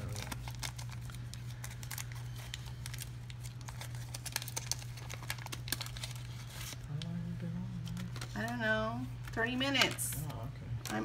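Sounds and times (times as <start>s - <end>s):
cards clicking and rustling: 0.0s - 6.8s
low hum: 0.0s - 11.0s.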